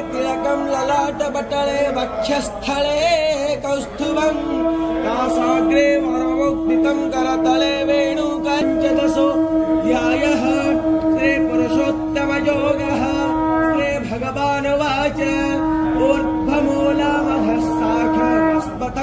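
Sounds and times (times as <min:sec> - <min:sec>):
person chanting with wavering voice: 0:00.0 - 0:19.0
steady held drone: 0:04.0 - 0:19.0.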